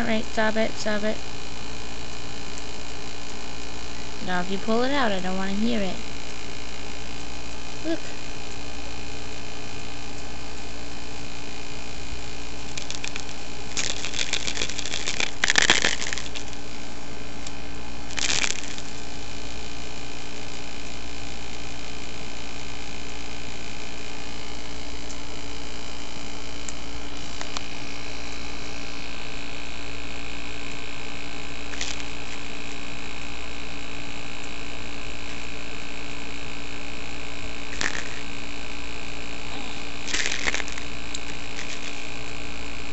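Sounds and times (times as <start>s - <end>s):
electrical hum: 0.0s - 42.9s
crackly clicks: 12.6s - 16.6s, 17.4s - 19.1s, 26.6s - 27.7s, 37.8s - 38.3s, 40.1s - 42.4s.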